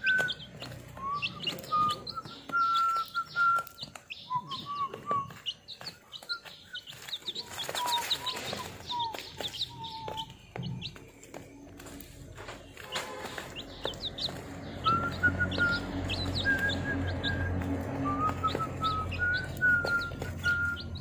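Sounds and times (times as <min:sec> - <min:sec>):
beaks pecking at feed: 0:00.0 - 0:21.0
chicks peeping: 0:00.0 - 0:21.0.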